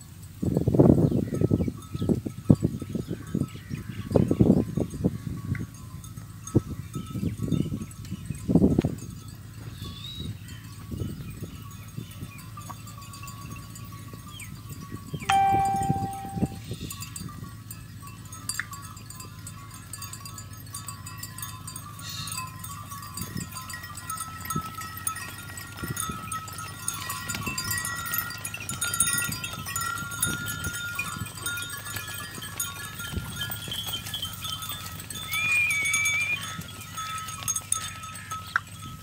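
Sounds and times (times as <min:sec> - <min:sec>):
hooves on dirt track: 0:00.0 - 0:39.0
high-pitched animal call: 0:35.3 - 0:36.4.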